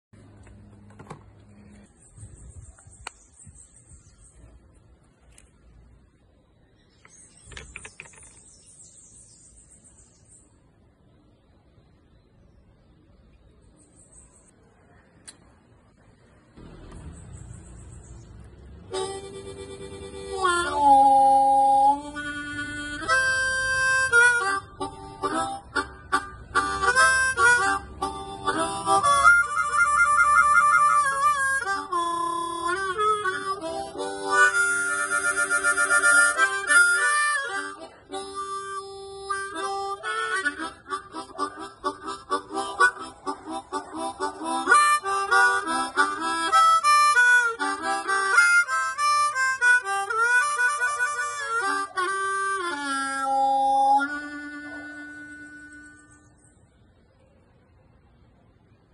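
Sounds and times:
harmonica playing: 18.9s - 56.3s.

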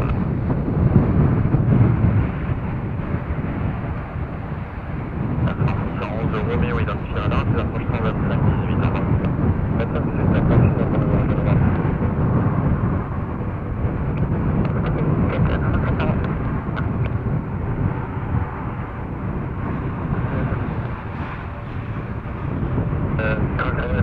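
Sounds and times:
jet engines rumbling: 0.0s - 24.0s.

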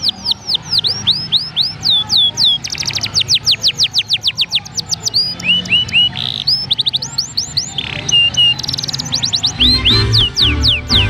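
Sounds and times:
canary singing: 0.0s - 11.0s.

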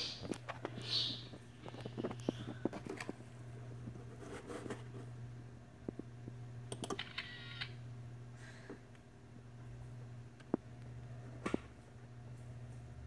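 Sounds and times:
steady low hum: 0.0s - 13.0s
computer mouse clicks: 6.7s - 7.7s.

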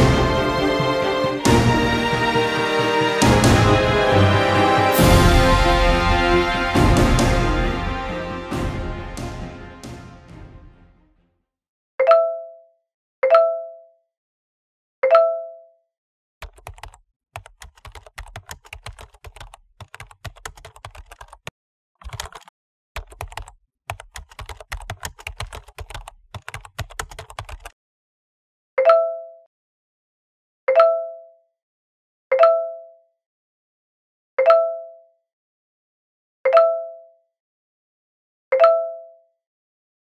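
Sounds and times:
typing on computer keyboard: 16.4s - 27.8s.

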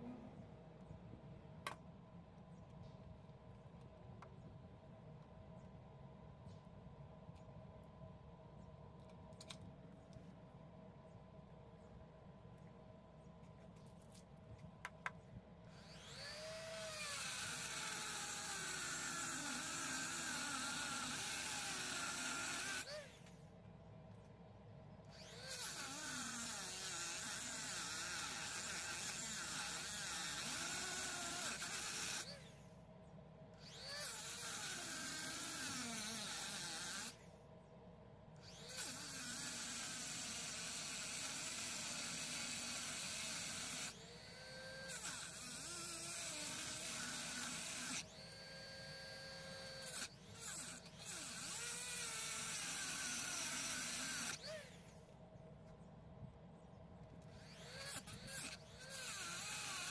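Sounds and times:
rotary tool grinding metal: 15.7s - 23.2s, 25.1s - 32.6s, 33.6s - 37.2s, 38.4s - 55.0s, 57.3s - 59.9s.

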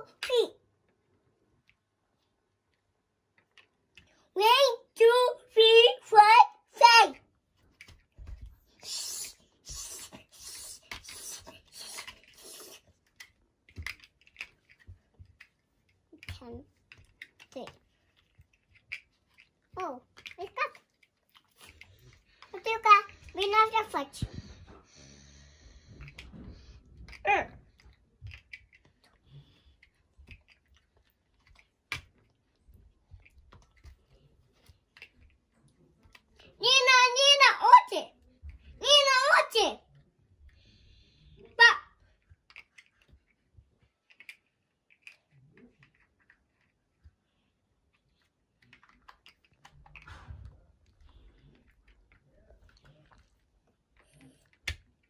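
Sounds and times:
plastic blocks clicking together: 10.8s - 23.4s, 42.2s - 43.4s, 44.0s - 46.8s.

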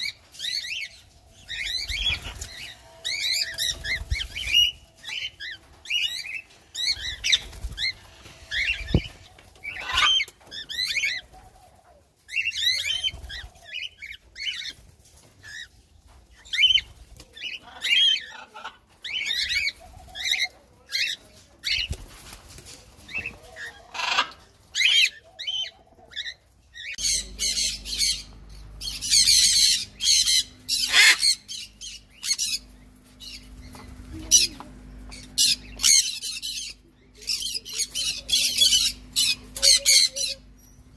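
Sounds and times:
small birds chirping and whistling: 0.0s - 22.2s, 23.0s - 40.9s
harsh parrot calls: 8.5s - 11.2s, 23.8s - 25.7s, 26.9s - 32.6s.

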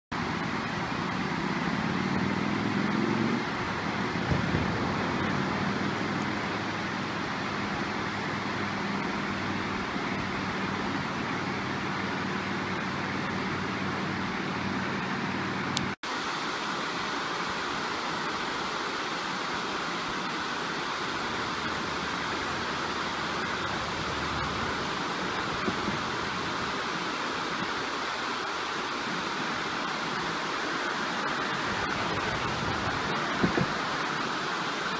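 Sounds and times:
water rushing over spillway: 0.1s - 34.9s.

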